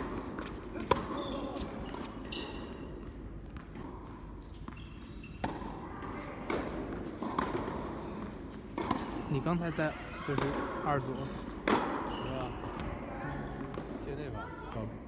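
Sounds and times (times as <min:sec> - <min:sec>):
tennis ball hits and bounces: 0:00.0 - 0:02.1, 0:05.4 - 0:09.2, 0:10.3 - 0:10.8, 0:11.5 - 0:13.0.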